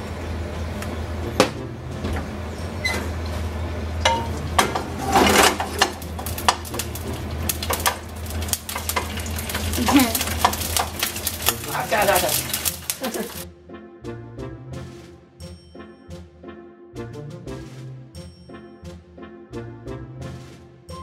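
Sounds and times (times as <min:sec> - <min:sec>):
ginger frying and spattering in oil: 0:03.1 - 0:13.4
wooden spatula scraping pan: 0:04.6 - 0:07.0.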